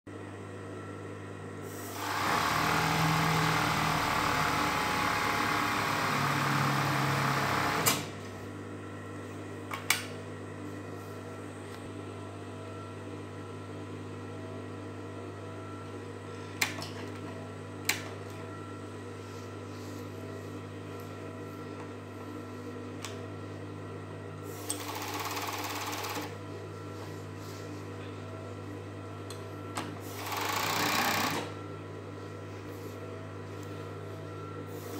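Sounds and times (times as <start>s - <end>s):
steady electric hum: 0.1s - 34.9s
overlock sewing machine running: 1.9s - 8.1s, 24.6s - 26.4s, 30.0s - 31.6s.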